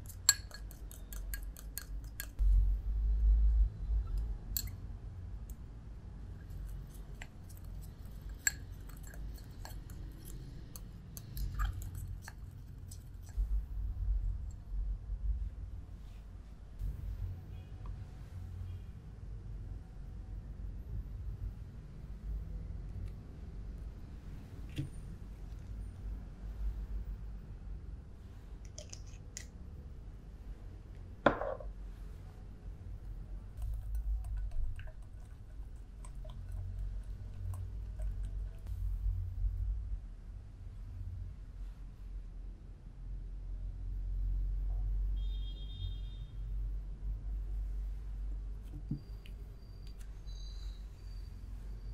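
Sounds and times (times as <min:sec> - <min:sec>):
spoon scraping glass bowl: 0:00.0 - 0:02.4, 0:06.4 - 0:13.4
whisk clicking against glass bowl: 0:00.0 - 0:02.4.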